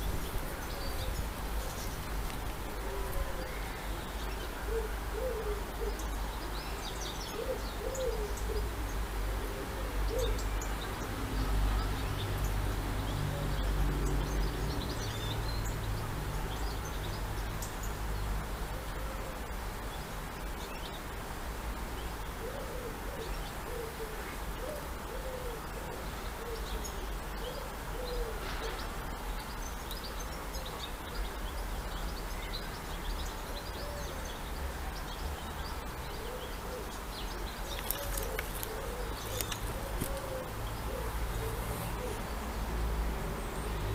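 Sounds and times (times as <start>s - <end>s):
pigeons cooing: 0.0s - 3.8s, 4.6s - 6.0s, 7.3s - 8.7s, 9.3s - 10.4s, 22.4s - 28.8s, 36.1s - 42.3s
small birds chirping: 0.0s - 43.9s.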